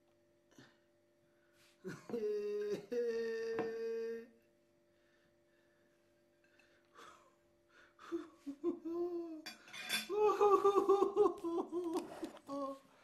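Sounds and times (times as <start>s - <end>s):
man humming: 1.8s - 4.5s, 8.0s - 9.5s, 10.1s - 12.9s.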